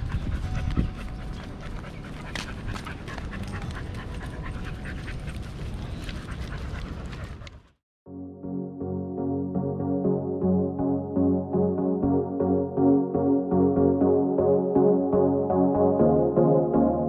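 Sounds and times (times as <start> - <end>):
dog panting: 0.0 - 7.8.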